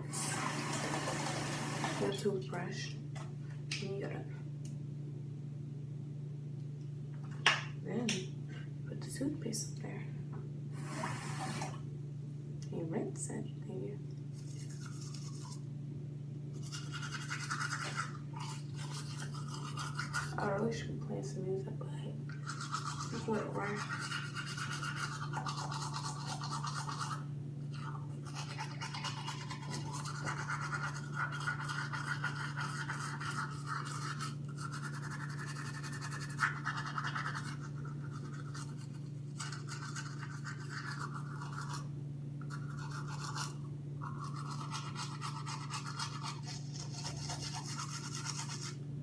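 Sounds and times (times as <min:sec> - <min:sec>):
toothbrush scrubbing teeth: 0:14.3 - 0:15.6, 0:16.5 - 0:20.8, 0:22.3 - 0:48.8.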